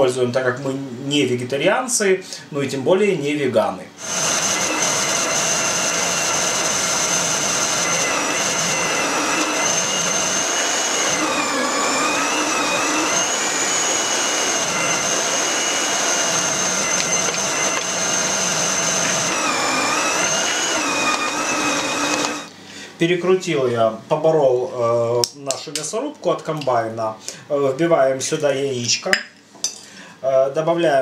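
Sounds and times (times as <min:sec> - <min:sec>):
food processor motor whining: 0:04.0 - 0:22.6.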